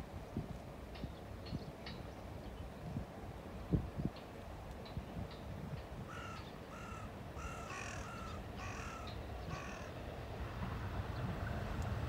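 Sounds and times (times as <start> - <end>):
crow cawing: 6.1 - 9.9.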